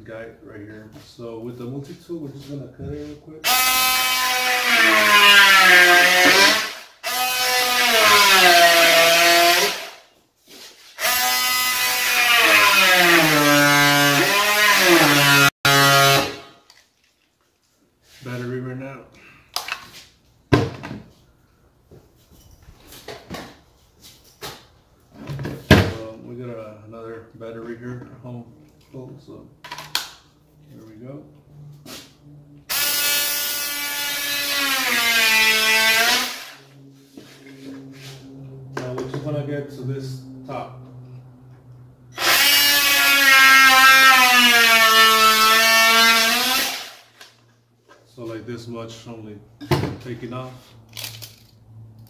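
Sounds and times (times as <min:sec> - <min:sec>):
multi-tool cutting into wood: 0:03.4 - 0:10.0, 0:11.0 - 0:16.5, 0:32.7 - 0:36.6, 0:42.2 - 0:47.2
shuffling footsteps: 0:36.9 - 0:38.4.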